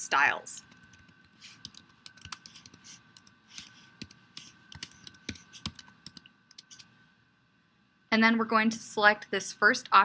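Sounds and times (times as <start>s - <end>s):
computer keyboard typing: 0.6s - 6.8s.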